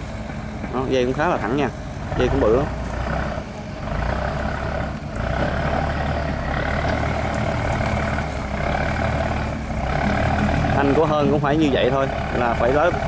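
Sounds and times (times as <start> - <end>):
heavy diesel engine running: 0.0 - 13.0.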